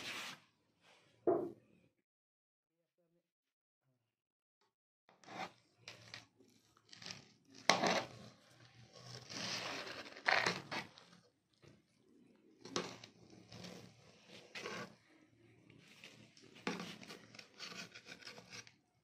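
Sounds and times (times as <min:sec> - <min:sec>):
spoon scraping rice in metal pot: 0:12.6 - 0:15.2.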